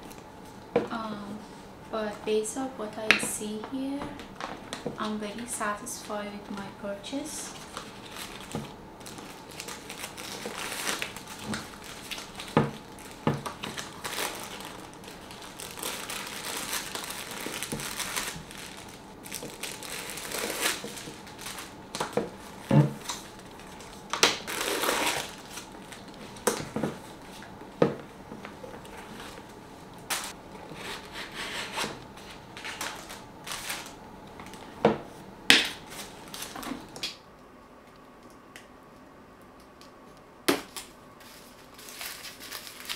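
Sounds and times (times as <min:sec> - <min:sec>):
paper and plastic crinkling: 0:07.4 - 0:27.5, 0:30.1 - 0:34.8, 0:35.6 - 0:37.0, 0:41.2 - 0:42.9.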